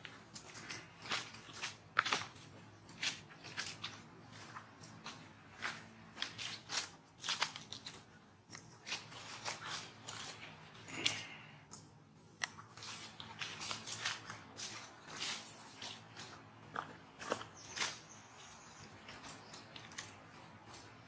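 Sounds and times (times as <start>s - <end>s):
dry crackling and crunching clicks: 0.3s - 15.2s, 19.0s - 20.4s.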